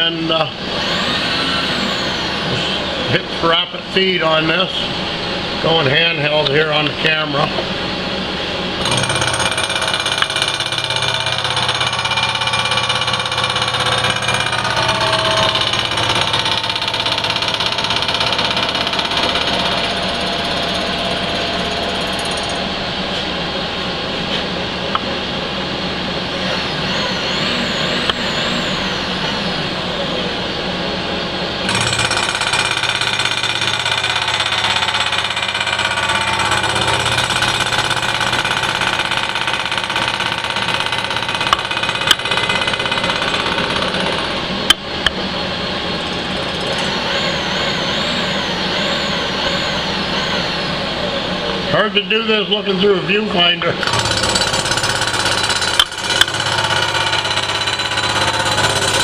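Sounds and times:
milling machine cutting metal: 0.0s - 7.5s, 8.6s - 44.7s, 45.3s - 51.7s, 53.8s - 59.0s.

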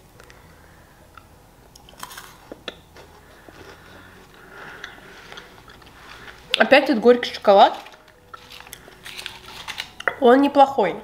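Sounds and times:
quiet chewing: 1.1s - 6.6s
crisp crunches: 1.8s - 10.0s.

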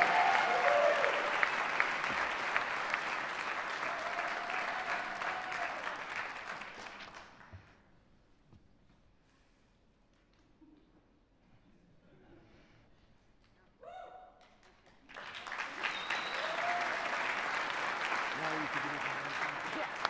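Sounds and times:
audience applauding: 0.0s - 7.5s, 14.8s - 20.0s.

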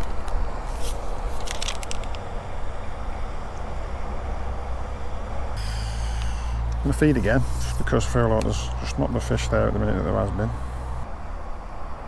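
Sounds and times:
low outdoor rumble: 0.0s - 12.0s
short clicks and crackles: 1.4s - 2.2s.

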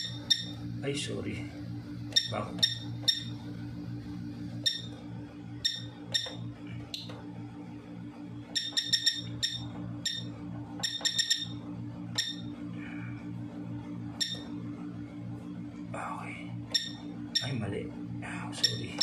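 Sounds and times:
short keypad beeps: 0.0s - 0.6s, 2.1s - 3.3s, 4.6s - 4.9s, 5.6s - 6.4s, 8.6s - 11.6s, 12.2s - 12.4s, 14.2s - 14.4s, 16.7s - 17.6s, 18.6s - 19.0s
steady low hum: 0.0s - 19.0s.

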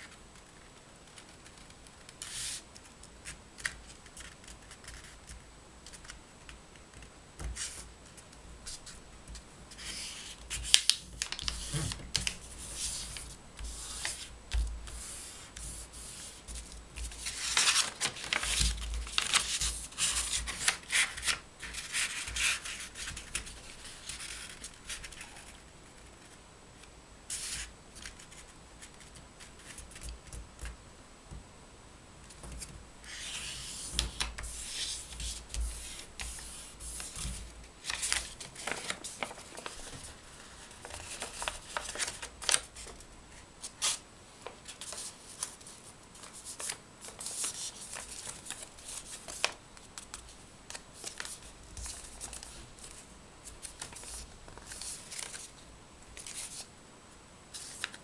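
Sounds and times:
paper rustling and crinkling: 7.0s - 26.2s, 32.3s - 55.6s, 56.2s - 56.7s, 57.5s - 58.0s.

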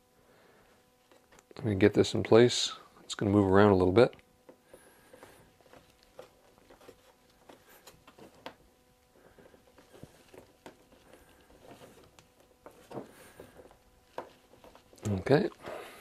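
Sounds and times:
faint steady hum: 0.0s - 16.0s
hands rubbing on wood: 4.7s - 16.0s.

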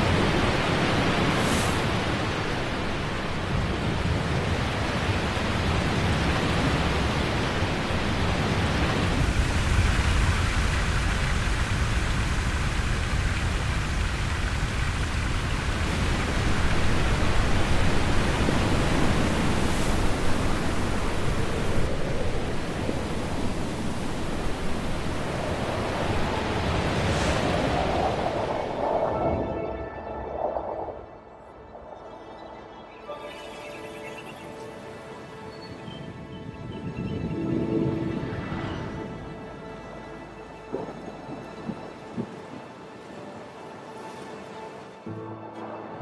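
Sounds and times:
waterfall rushing: 0.0s - 27.7s.

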